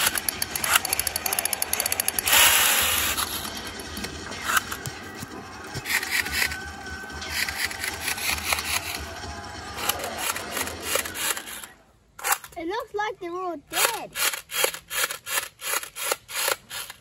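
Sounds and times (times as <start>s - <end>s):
toy gun rattle of shots: 0.0s - 4.8s, 5.8s - 6.6s, 7.2s - 9.0s, 9.8s - 12.7s, 13.7s - 17.0s.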